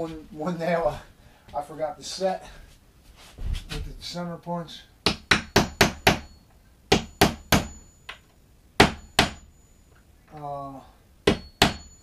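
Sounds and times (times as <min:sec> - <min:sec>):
hammer striking metal punch: 0:05.0 - 0:08.2, 0:08.8 - 0:09.5, 0:11.3 - 0:12.0.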